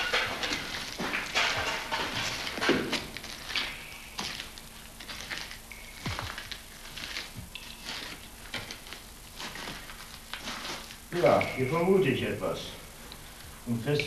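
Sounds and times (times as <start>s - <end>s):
faint steady hum: 0.0s - 14.0s
footsteps on stony floor: 1.6s - 8.8s.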